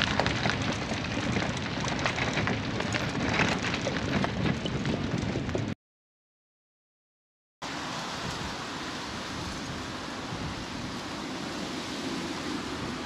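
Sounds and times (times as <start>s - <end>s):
steady rushing noise: 7.6s - 13.0s.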